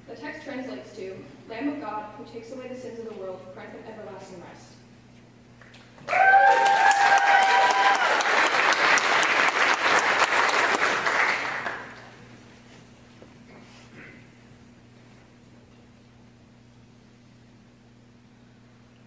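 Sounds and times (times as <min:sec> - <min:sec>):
crowd cheering: 0:06.0 - 0:12.0
audience applauding: 0:06.0 - 0:12.2.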